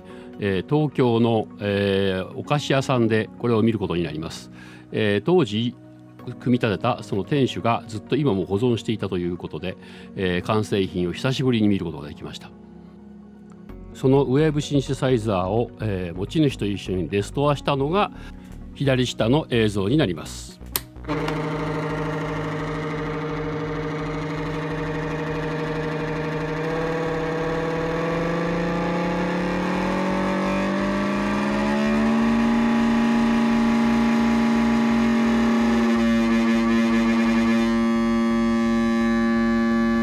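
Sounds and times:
analog synthesizer tone: 21.0 - 40.0.

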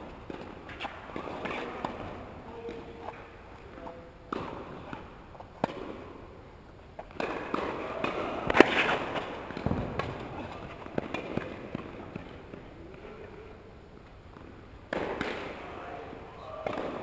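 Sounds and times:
tennis ball strikes echoing: 0.0 - 3.3, 4.3 - 6.2, 7.0 - 12.7, 14.3 - 15.8, 16.6 - 17.0.

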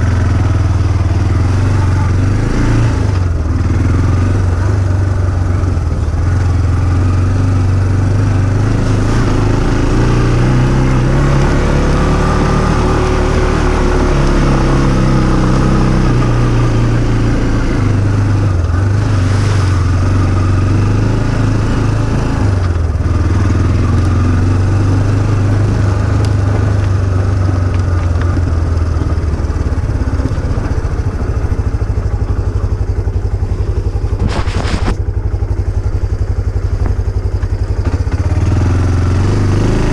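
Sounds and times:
off-road vehicle engine revving: 0.0 - 39.9.

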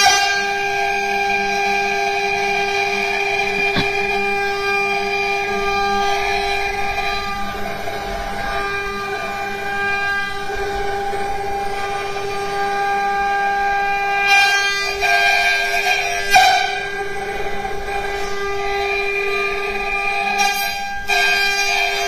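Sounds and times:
bit cutting wood: 3.4 - 4.2.

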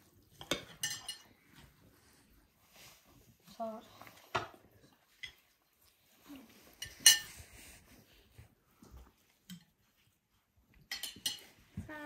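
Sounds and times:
plates and cutlery clinking: 0.1 - 1.9, 4.1 - 8.0, 10.7 - 12.0.

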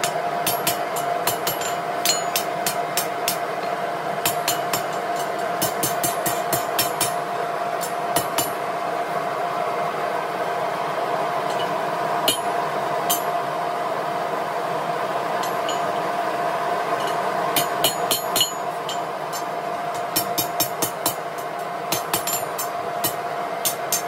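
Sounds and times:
hammer striking iron on anvil: 0.0 - 7.2, 7.8 - 8.6, 11.5 - 13.4, 15.4 - 16.1, 17.0 - 24.0.

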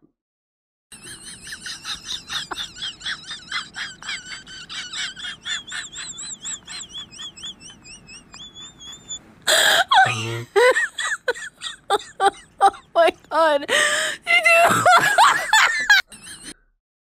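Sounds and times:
high-pitched chirping chatter: 5.0 - 9.2.

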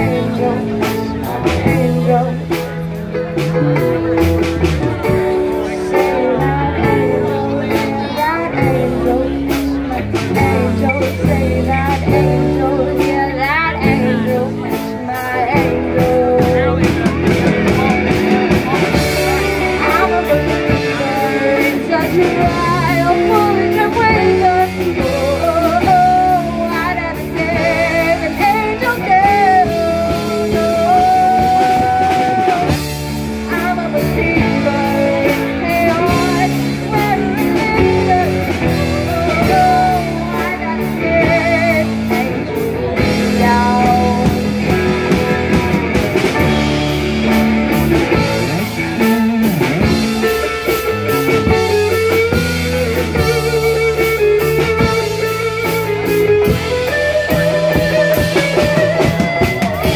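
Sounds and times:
woman singing with vibrato: 0.0 - 47.4
drum kit: 0.0 - 59.9
electric guitars: 0.0 - 59.9.

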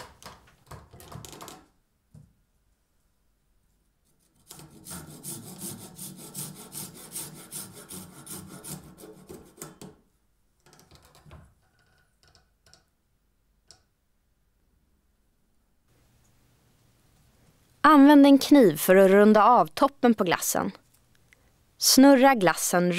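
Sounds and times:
handsaw cutting wooden stick: 4.1 - 9.9.

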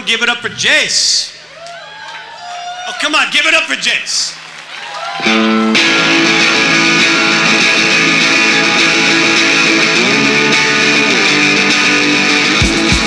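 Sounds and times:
electric guitar chords: 5.2 - 13.0
kick drum beats: 12.6 - 13.0.

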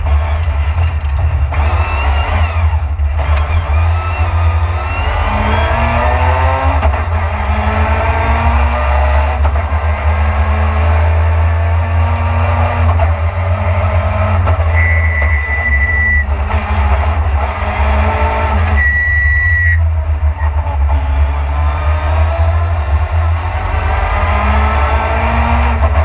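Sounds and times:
car engine running hard: 0.0 - 26.0
high thin whistling tone: 14.8 - 16.3, 18.8 - 19.8.

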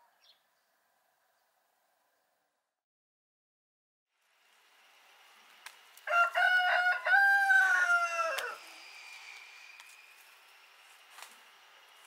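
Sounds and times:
rooster crowing: 6.0 - 8.8.

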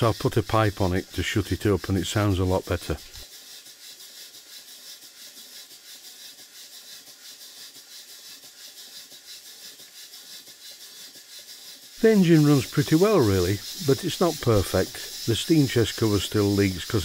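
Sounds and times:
steam engine exhaust chuffing: 4.4 - 17.0.

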